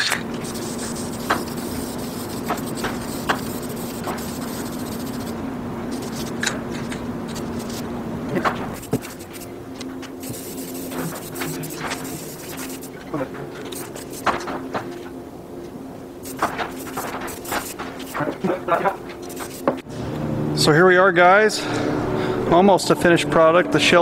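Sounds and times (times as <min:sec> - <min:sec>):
steady low hum: 0:00.0 - 0:24.0
aerosol spray can hissing: 0:00.4 - 0:06.4, 0:08.8 - 0:09.5, 0:10.2 - 0:13.0, 0:13.7 - 0:14.3, 0:16.2 - 0:18.1, 0:19.2 - 0:19.8.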